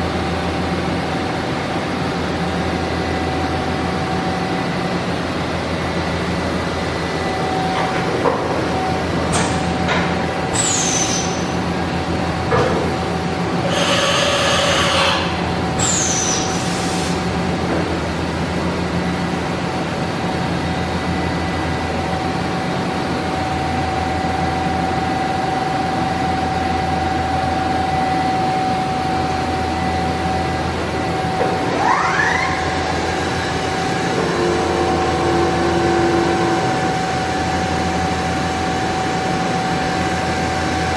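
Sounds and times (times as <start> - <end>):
shop machinery hum with whine: 0.0 - 40.9
short falling squeals: 31.7 - 32.8.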